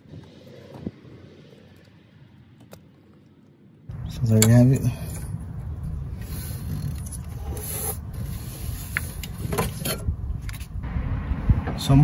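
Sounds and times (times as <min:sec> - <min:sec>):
steady low rumble: 0:00.0 - 0:07.4, 0:08.0 - 0:12.0.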